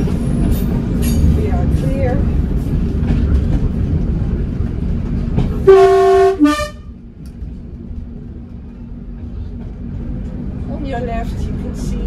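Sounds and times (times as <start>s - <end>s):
train running rumble: 0.0s - 12.0s
two-tone train horn: 5.6s - 7.0s.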